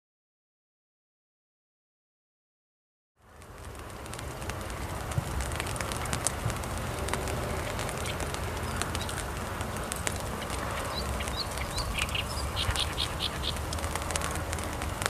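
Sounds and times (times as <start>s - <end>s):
light rain on leaves: 3.2s - 15.0s
small bird chirping: 10.4s - 13.7s.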